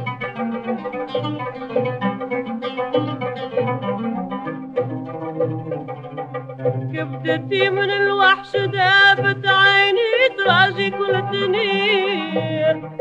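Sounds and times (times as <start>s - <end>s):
low instrumental accompaniment: 0.0s - 13.0s
woman singing with vibrato: 6.9s - 13.0s.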